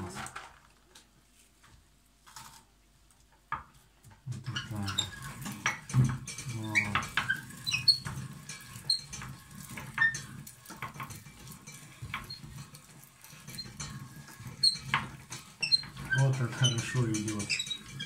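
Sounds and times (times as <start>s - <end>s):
nuts crackling in meat grinder: 4.3s - 18.0s
grinder crank squeaking: 4.5s - 18.0s.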